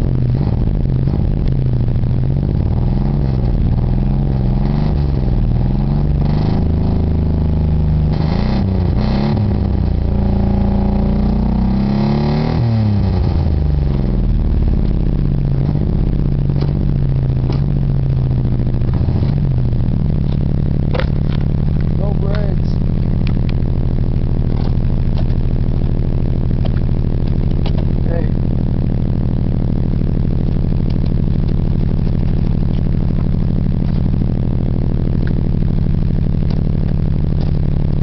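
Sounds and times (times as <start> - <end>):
small car engine revving: 2.4 - 23.5.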